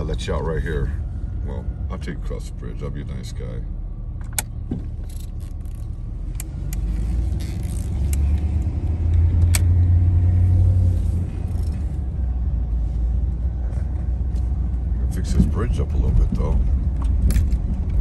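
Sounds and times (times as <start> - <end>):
van engine and road hum: 0.0 - 18.0
sharp clicks and rattles: 15.2 - 18.0.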